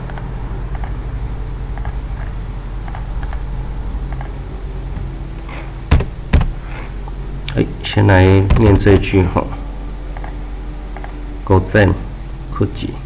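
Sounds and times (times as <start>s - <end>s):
low hum: 0.0s - 13.0s
computer mouse clicks: 0.1s - 0.9s, 1.8s - 2.0s, 2.8s - 3.4s, 4.1s - 4.4s, 10.2s - 10.4s, 11.0s - 11.2s
keyboard clicks: 1.8s - 2.0s, 2.9s - 3.4s, 4.1s - 4.3s, 5.9s - 6.6s, 8.5s - 9.1s, 10.2s - 10.4s, 11.0s - 11.2s.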